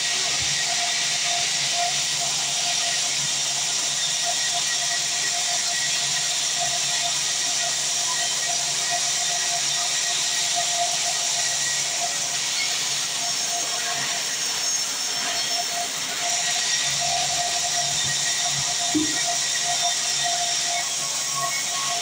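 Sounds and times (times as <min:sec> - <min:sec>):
band saw blade hissing: 0:18.9 - 0:20.2.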